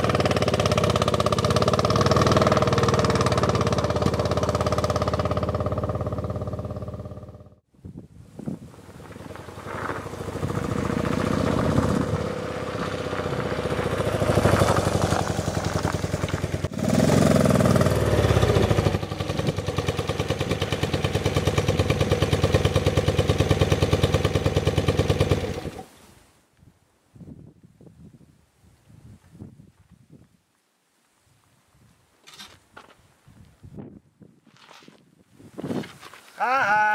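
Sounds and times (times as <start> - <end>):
motorcycle engine revving and idling: 0.0 - 7.7, 8.8 - 25.9.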